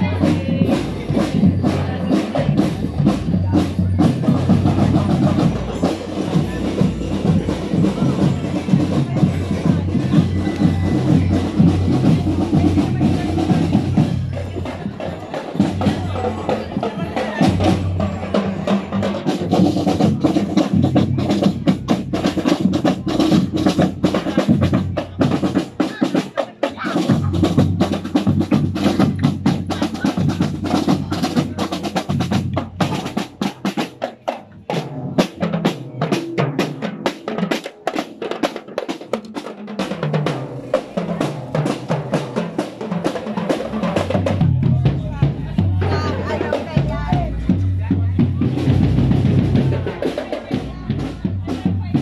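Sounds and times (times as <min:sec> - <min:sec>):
bass drum beat: 0:00.0 - 0:33.8, 0:43.7 - 0:52.0
snare drums rattling and rolling: 0:00.0 - 0:52.0.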